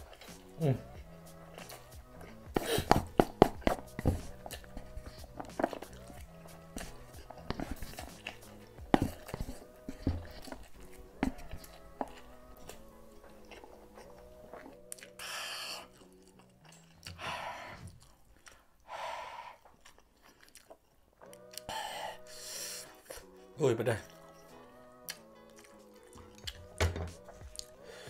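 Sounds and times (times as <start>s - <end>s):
slurping and chewing: 0.0s - 28.0s
breath-like hisses: 15.2s - 16.0s, 21.7s - 23.1s.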